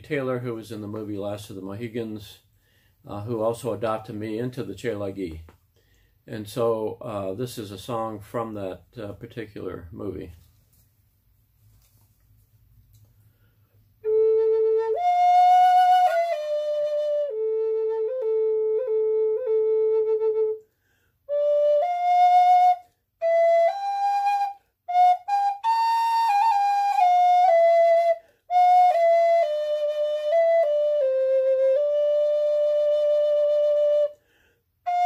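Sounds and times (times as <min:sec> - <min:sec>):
wooden flute melody: 0:14.0 - 0:34.2, 0:34.8 - 0:35.0.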